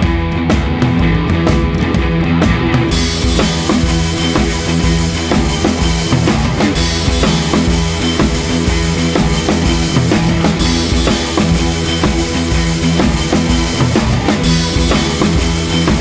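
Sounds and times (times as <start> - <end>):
music with drum-kit beat: 0.0 - 16.0.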